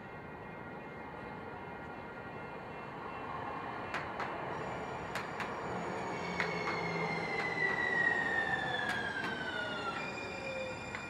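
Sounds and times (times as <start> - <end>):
train wheel squeal: 4.5 - 11.0
wheels clicking over rail joints: 5.0 - 11.0.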